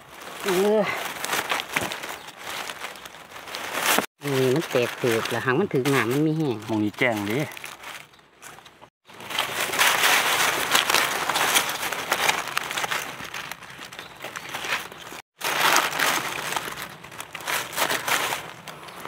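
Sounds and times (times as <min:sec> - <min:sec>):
dry leaves crunching: 0:00.0 - 0:19.0.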